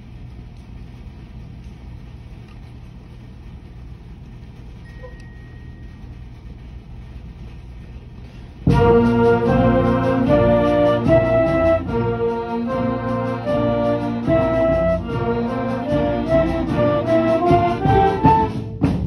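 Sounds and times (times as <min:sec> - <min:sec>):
low room rumble: 0:00.0 - 0:19.0
band playing sustained chords: 0:08.6 - 0:18.7.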